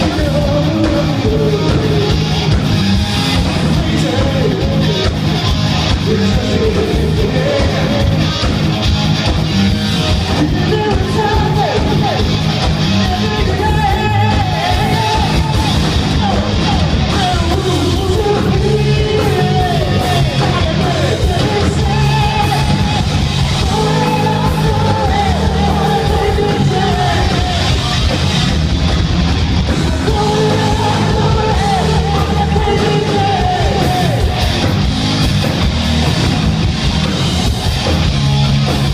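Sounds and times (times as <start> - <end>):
lead singer's held vocals: 0.0 - 2.5, 5.9 - 8.6, 13.0 - 28.2, 29.7 - 34.8
bass guitar: 0.0 - 38.9
distorted electric guitars: 0.0 - 38.9
drums: 0.0 - 38.9.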